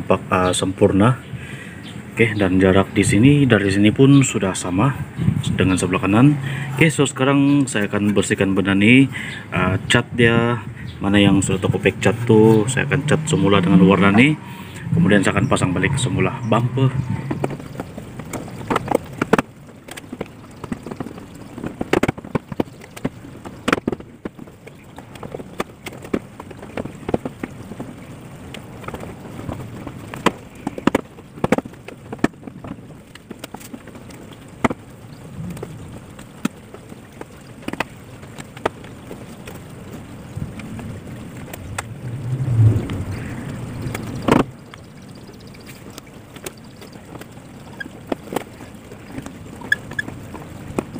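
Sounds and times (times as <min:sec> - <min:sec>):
plastic clicks and knocks: 0:17.2 - 0:42.0, 0:42.9 - 0:50.9.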